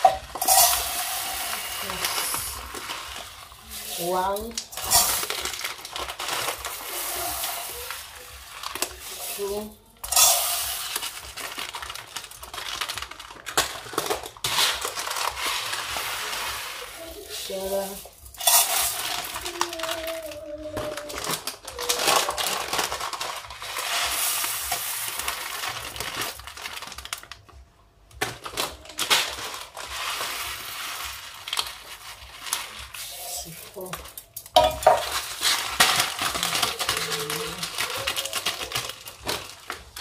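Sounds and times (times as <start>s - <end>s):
rice pouring onto metal: 0.0s - 13.0s, 14.4s - 19.6s, 23.1s - 26.4s, 29.5s - 33.9s
plastic bag crinkling: 0.0s - 40.0s.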